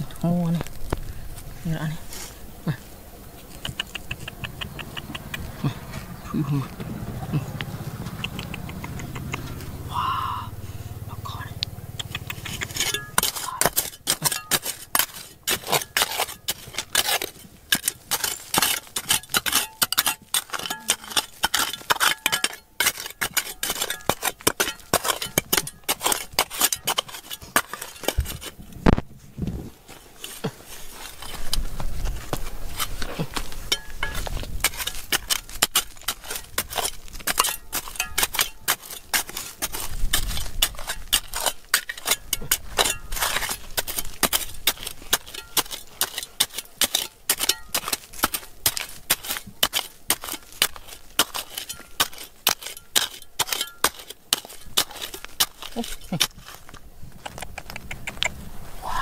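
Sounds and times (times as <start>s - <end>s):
hand tools striking rock: 12.0s - 29.0s, 30.2s - 58.3s.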